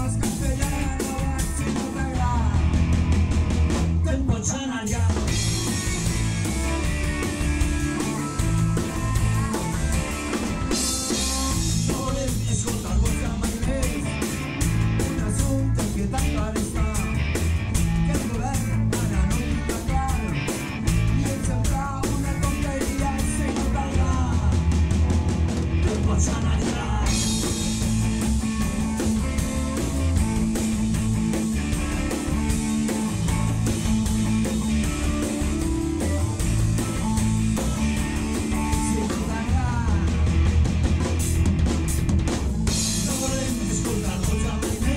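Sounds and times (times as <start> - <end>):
person singing: 0.0 - 2.8, 10.6 - 14.3, 15.0 - 17.4, 18.0 - 20.4, 21.0 - 24.8, 36.8 - 40.3, 42.9 - 44.9
drum kit beat: 0.0 - 44.9
electric guitar: 0.0 - 44.9.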